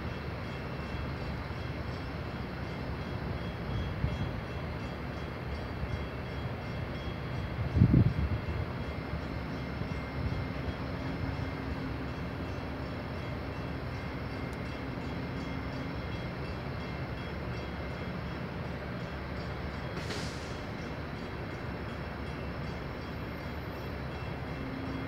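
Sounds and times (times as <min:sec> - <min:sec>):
brief hiss: 0:20.0 - 0:20.9.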